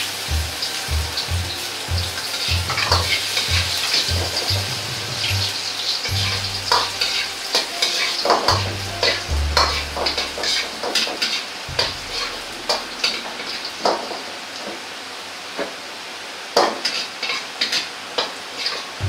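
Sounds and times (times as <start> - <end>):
garlic sizzling in hot oil: 0.0 - 19.0
steel ladle scraping a wok: 5.5 - 14.3.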